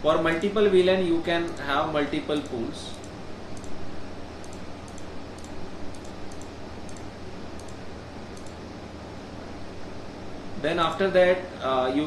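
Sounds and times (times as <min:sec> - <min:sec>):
low background hum: 0:00.0 - 0:12.0
keyboard and mouse clicks: 0:02.4 - 0:03.8, 0:04.4 - 0:07.8, 0:08.4 - 0:08.6.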